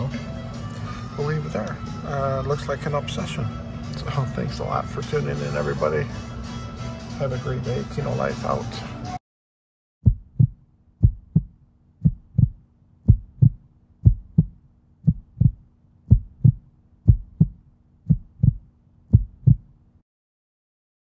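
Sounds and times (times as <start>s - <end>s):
heartbeat thumps: 10.0s - 19.7s.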